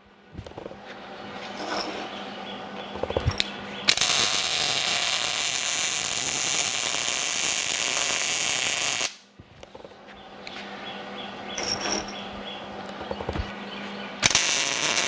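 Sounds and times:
welding arc hissing: 3.9 - 9.3, 14.2 - 15.0.

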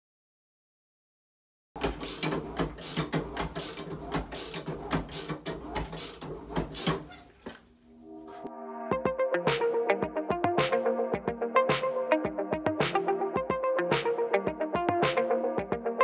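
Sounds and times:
toilet flush clattering: 1.8 - 7.6
music: 8.0 - 16.0.

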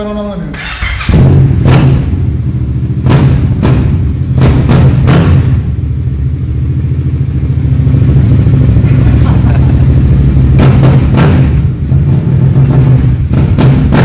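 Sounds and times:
motorcycle engine revving and idling: 0.0 - 14.0.

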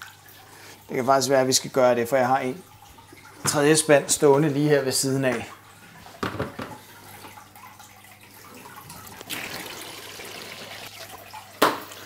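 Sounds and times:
water splashing into bucket: 5.3 - 12.0.

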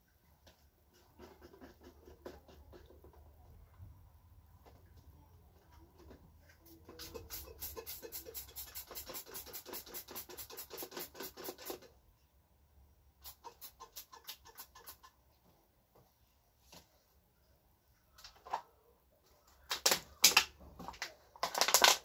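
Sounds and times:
rapid rhythmic scratching: 6.8 - 11.9, 13.2 - 15.2.

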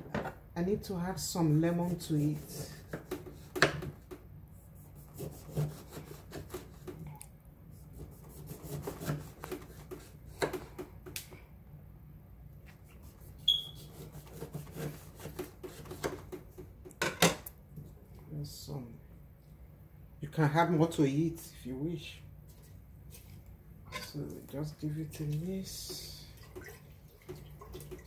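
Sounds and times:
knife cutting fruit on board: 1.8 - 4.2, 4.8 - 7.1, 7.9 - 11.3, 12.7 - 17.5.

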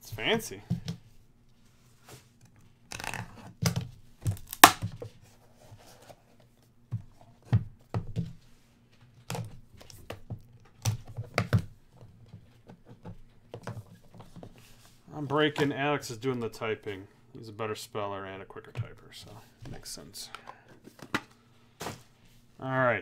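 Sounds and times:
cardboard seal tearing: 4.3 - 4.8.

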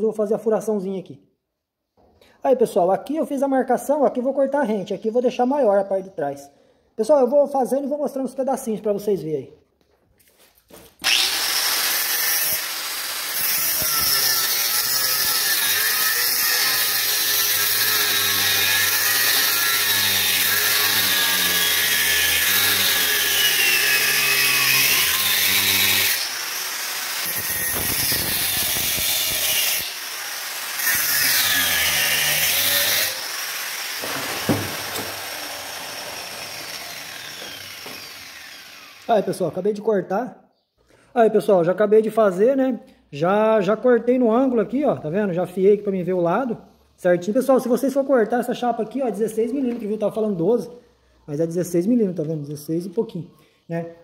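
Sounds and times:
angle grinder cutting steel: 11.0 - 39.2.

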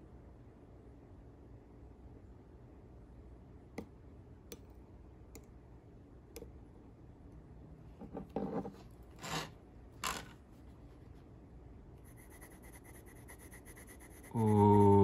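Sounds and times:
pen brushing on paper: 12.1 - 14.5.

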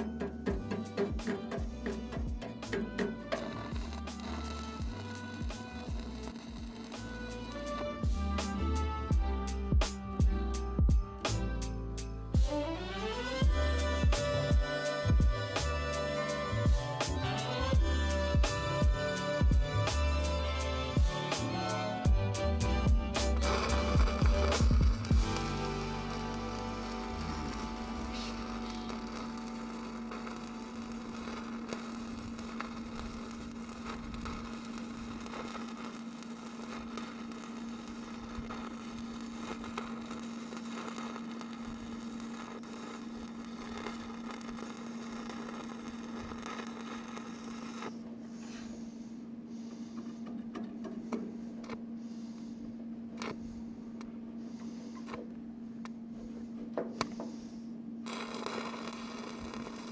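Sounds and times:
welding arc crackling: 0.0 - 8.2, 13.5 - 48.0, 58.0 - 59.9
low hum: 0.0 - 59.9.

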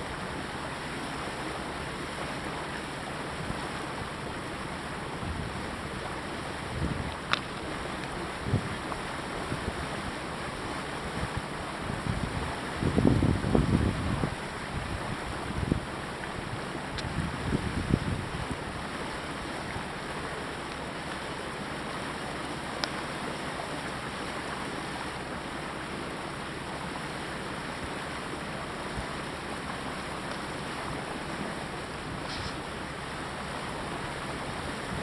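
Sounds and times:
boat engine humming: 0.0 - 35.0
water and air rushing past boat: 0.0 - 35.0.

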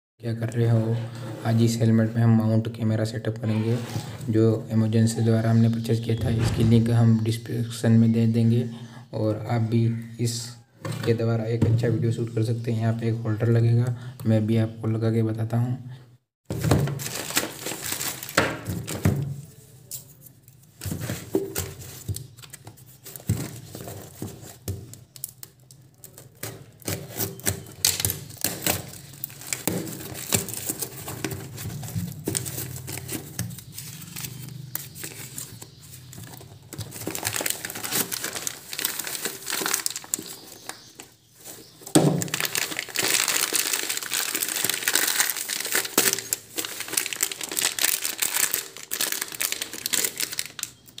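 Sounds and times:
plastic packaging crinkling: 16.9 - 19.0, 21.1 - 51.0.

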